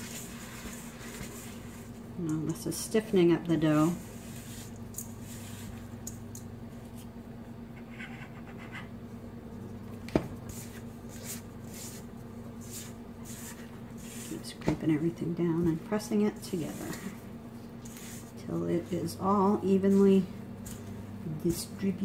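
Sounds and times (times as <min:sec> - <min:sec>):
low steady hum: 0:00.0 - 0:22.0
spatula scraping dough in bowl: 0:10.5 - 0:14.7, 0:17.8 - 0:21.7.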